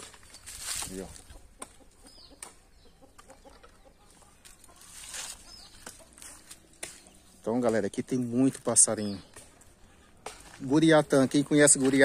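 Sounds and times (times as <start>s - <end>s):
footsteps through grass and brush: 0.0s - 1.4s, 4.1s - 9.6s, 10.3s - 12.0s
soft repeated clucking: 1.2s - 8.2s.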